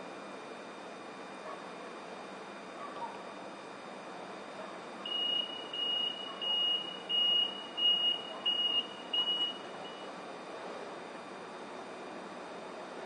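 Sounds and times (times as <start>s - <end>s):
train door warning beeps: 5.1s - 10.1s.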